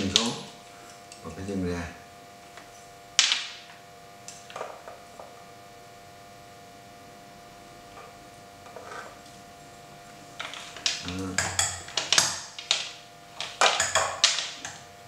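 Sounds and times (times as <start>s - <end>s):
metal stove parts clattering: 10.4s - 14.8s.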